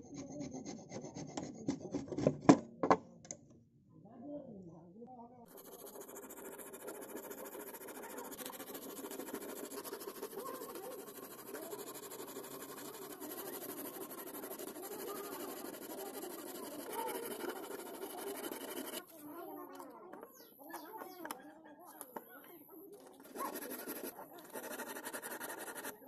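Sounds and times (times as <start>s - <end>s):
knife scraping wood: 5.5s - 19.2s, 23.1s - 26.0s.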